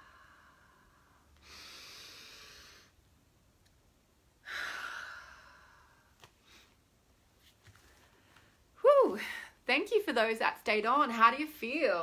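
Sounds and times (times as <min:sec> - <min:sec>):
woman breathing in: 0:00.0 - 0:03.0, 0:04.4 - 0:06.8
woman breathing out: 0:00.0 - 0:03.0, 0:04.4 - 0:06.8.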